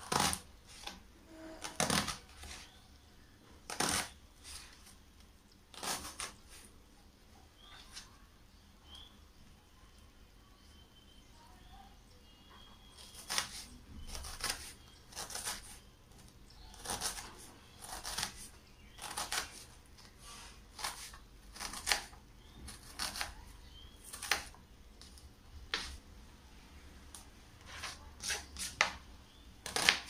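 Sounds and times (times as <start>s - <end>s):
knife cutting onion on board: 1.6s - 2.7s, 13.0s - 15.8s, 20.7s - 23.4s, 27.6s - 29.0s, 29.6s - 30.0s.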